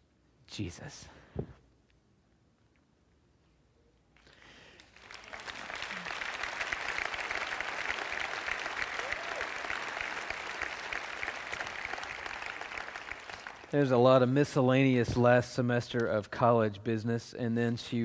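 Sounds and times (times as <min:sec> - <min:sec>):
audience applauding: 0:04.2 - 0:13.8.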